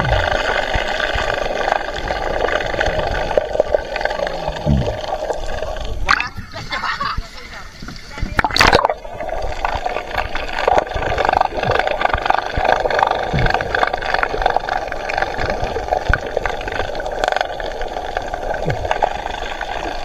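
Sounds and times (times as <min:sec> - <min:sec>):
muffled underwater rush: 0:00.0 - 0:20.0
small underwater clicks and knocks: 0:10.9 - 0:17.6.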